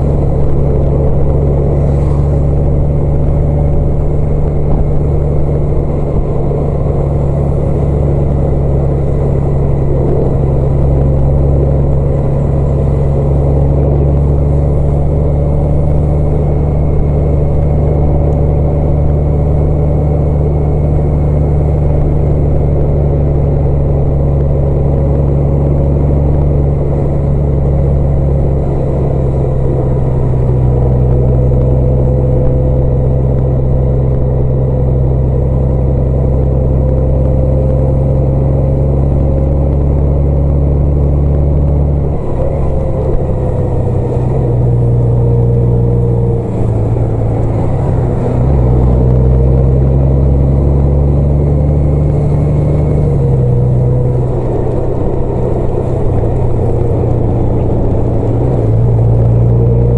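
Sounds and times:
steady whine: 0:00.0 - 0:59.9
vehicle engine drone: 0:00.0 - 0:59.9.

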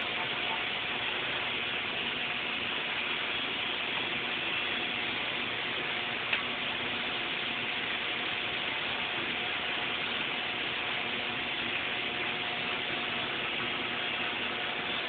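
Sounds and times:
welding arc crackling hiss: 0:00.0 - 0:15.0
welding arc pop: 0:06.2 - 0:06.7.

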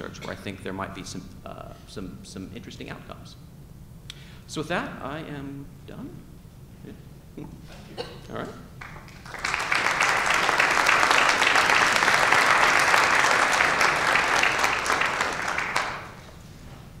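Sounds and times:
audience applauding: 0:08.8 - 0:16.4.

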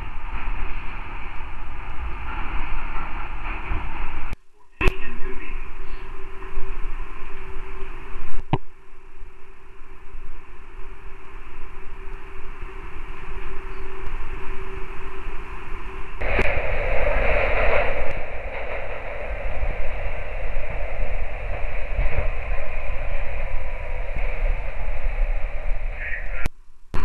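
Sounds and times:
radio static hiss: 0:00.0 - 0:27.0
faint steady hum tone: 0:04.3 - 0:16.6.

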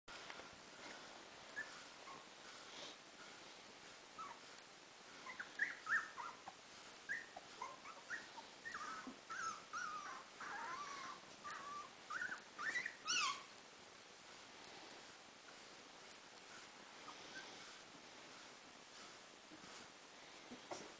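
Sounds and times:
puppies whimpering and yipping: 0:05.2 - 0:13.6.

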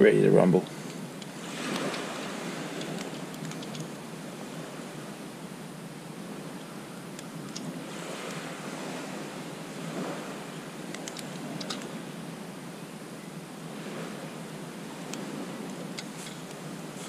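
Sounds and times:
small waves washing on beach: 0:00.0 - 0:17.0.

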